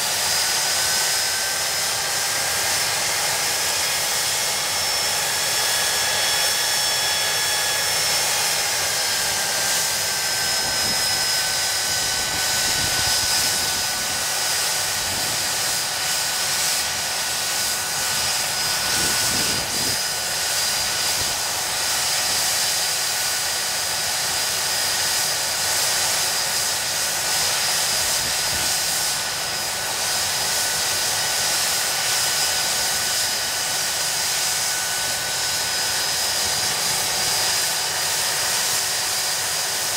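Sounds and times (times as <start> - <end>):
jet engine high whine: 0.0 - 39.9.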